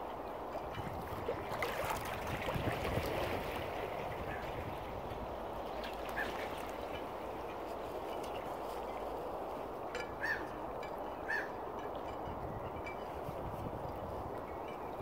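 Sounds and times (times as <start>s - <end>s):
water lapping: 0.0s - 12.2s
faint water-bird calls: 3.9s - 12.0s.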